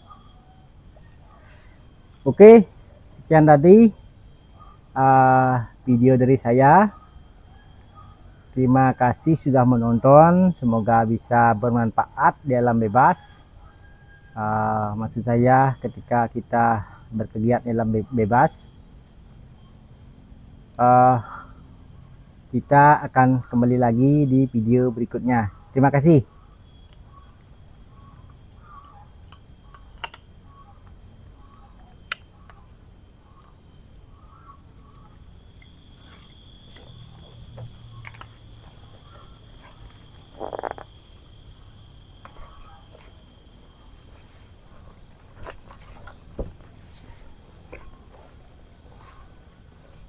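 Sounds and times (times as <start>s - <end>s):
small repeated chirps: 0.0s - 5.0s, 5.6s - 12.4s, 25.5s - 50.0s
insects trilling: 0.0s - 50.0s.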